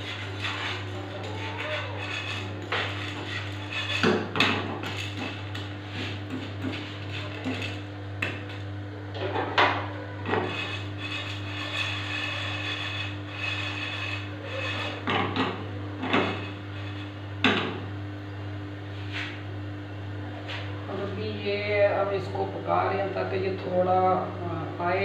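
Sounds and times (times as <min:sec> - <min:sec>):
spatula scraping frying pan: 0:00.0 - 0:08.6, 0:10.2 - 0:17.6
steady low hum: 0:00.0 - 0:25.0.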